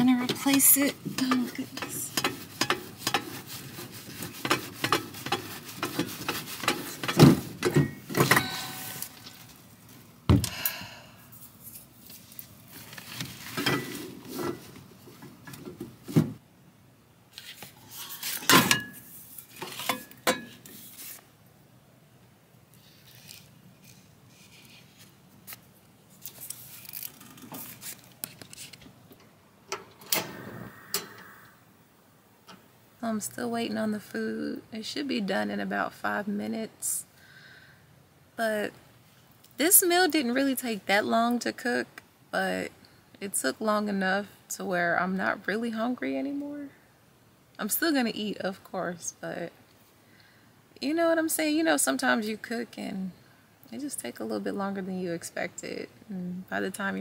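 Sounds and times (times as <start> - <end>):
metal stove parts clanking: 0.2 - 3.5, 4.4 - 9.2, 18.4 - 20.7.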